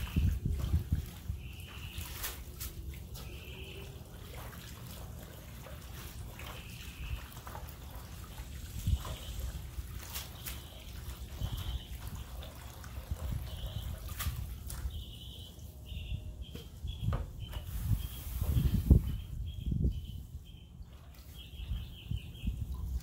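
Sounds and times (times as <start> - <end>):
water splashing into metal tray: 0.0 - 15.2.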